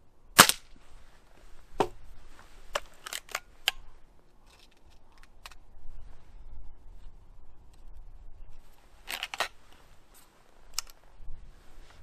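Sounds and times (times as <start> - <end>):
air rifle shot: 0.4 - 0.7.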